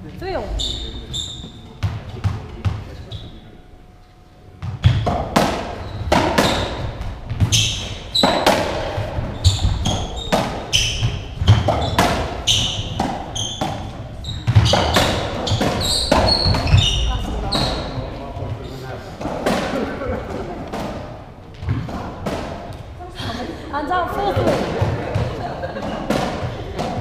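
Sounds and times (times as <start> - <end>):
shoe soles squeaking on floor: 0.2 - 2.0, 3.0 - 3.5, 4.6 - 18.9
ball hitting rackets and walls: 0.5 - 3.3, 4.6 - 23.0, 24.3 - 27.0.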